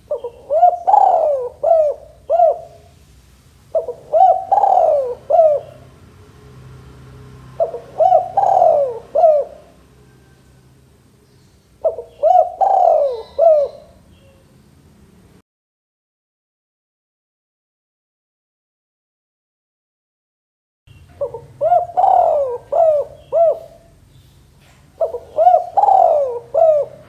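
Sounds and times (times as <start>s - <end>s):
dove cooing: 0.0s - 3.0s, 3.7s - 5.9s, 7.5s - 10.4s, 11.8s - 14.5s, 21.2s - 24.0s, 25.0s - 27.0s.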